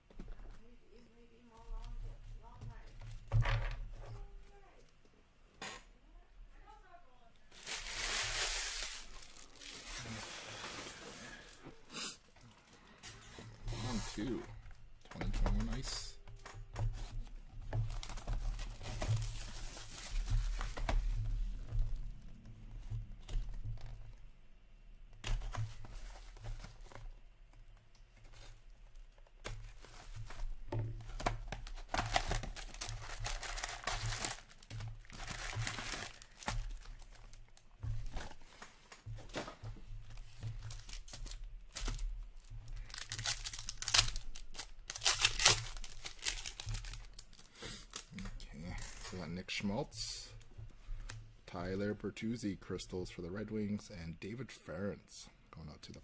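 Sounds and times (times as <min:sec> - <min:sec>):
card packs crinkling: 0:07.5 - 0:11.6, 0:17.8 - 0:22.0, 0:28.2 - 0:49.4
shrink wrap tearing: 0:07.5 - 0:11.6, 0:31.7 - 0:37.6, 0:42.7 - 0:49.2.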